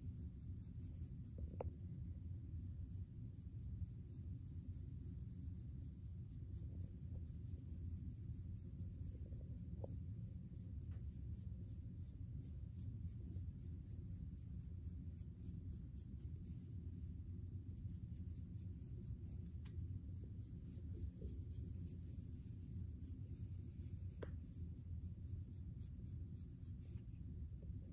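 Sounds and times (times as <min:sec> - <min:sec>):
low steady rumble: 0:00.0 - 0:27.9
comb scratching through hair: 0:10.4 - 0:27.3.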